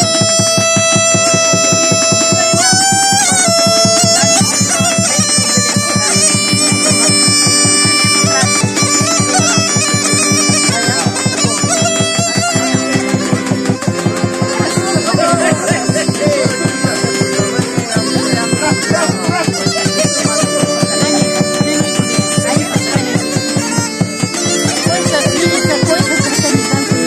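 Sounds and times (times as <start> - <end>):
accordion: 0.0 - 27.0
bagpipe tune with drone: 0.0 - 27.0
fast low beat: 0.0 - 27.0.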